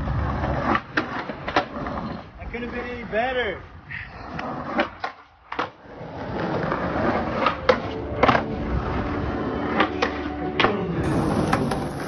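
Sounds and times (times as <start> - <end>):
skateboard wheels rolling on concrete: 0.0 - 12.0
skateboard clacks: 0.3 - 2.3, 4.3 - 5.8, 9.7 - 12.0.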